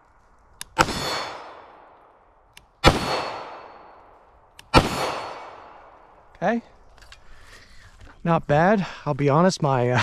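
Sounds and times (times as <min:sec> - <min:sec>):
pistol shots echoing: 0:00.6 - 0:06.2.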